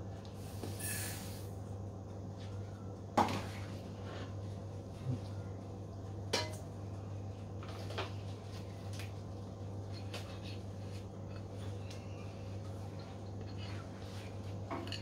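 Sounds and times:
steady low hum: 0.0s - 15.0s.

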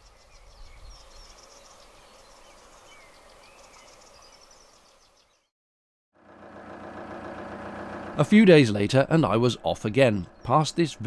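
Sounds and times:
small birds singing: 0.0s - 5.5s, 8.6s - 11.0s.

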